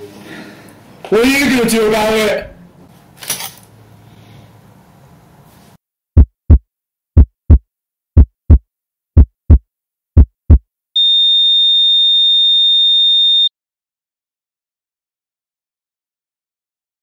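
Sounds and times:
heartbeat thumps: 0:06.2 - 0:06.6, 0:07.2 - 0:07.6, 0:08.2 - 0:08.6, 0:09.2 - 0:09.6, 0:10.2 - 0:10.6
high-pitched flatline tone: 0:11.0 - 0:13.5.

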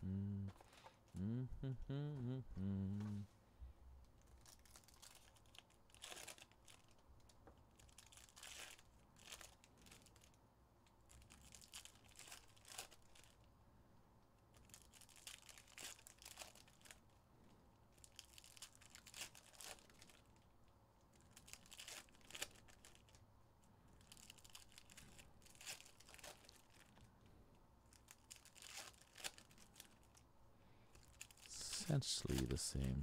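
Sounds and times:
wrappers crinkling and tearing: 0:04.3 - 0:10.4, 0:11.1 - 0:13.5, 0:14.5 - 0:17.2, 0:17.9 - 0:20.5, 0:21.1 - 0:23.2, 0:24.0 - 0:27.1, 0:27.8 - 0:30.2, 0:30.9 - 0:33.0.

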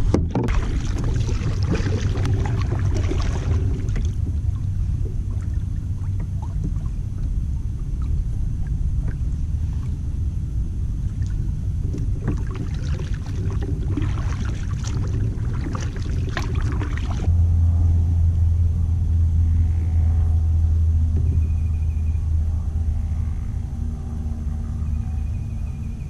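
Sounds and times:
paddle splashing water: 0:00.0 - 0:10.0, 0:11.0 - 0:17.3
low rumble: 0:00.0 - 0:26.0.

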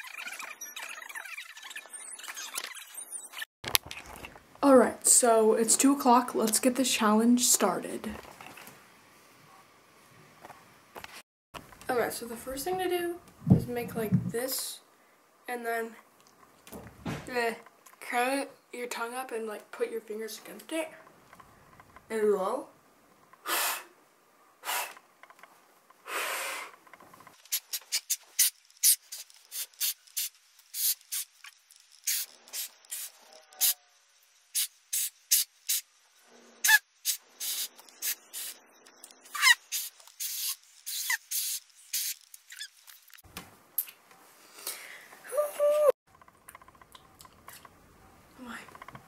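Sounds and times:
breathy puffs of air: 0:23.4 - 0:24.0, 0:24.6 - 0:25.0, 0:26.0 - 0:26.8.

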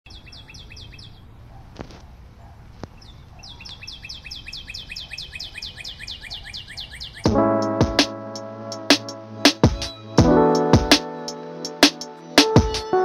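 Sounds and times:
bird chirping rapidly: 0:03.0 - 0:07.3.

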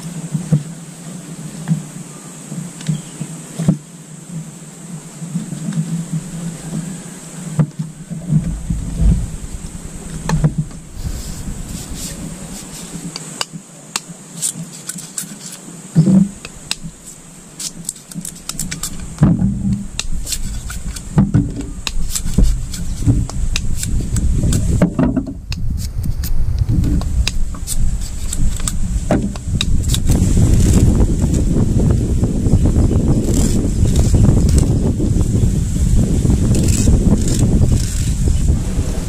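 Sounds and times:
wind rumble on microphone: 0:00.0 - 0:13.4, 0:15.8 - 0:39.0
knife scraping bamboo: 0:10.0 - 0:26.4, 0:27.0 - 0:31.4, 0:33.2 - 0:34.7, 0:36.4 - 0:38.4.

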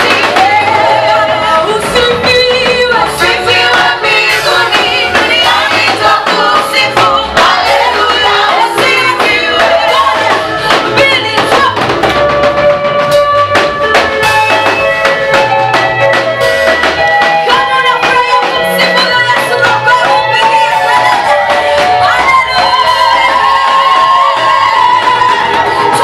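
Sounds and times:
group of women singing: 0:00.0 - 0:11.9, 0:17.4 - 0:26.0
live band with drums: 0:00.0 - 0:26.0.

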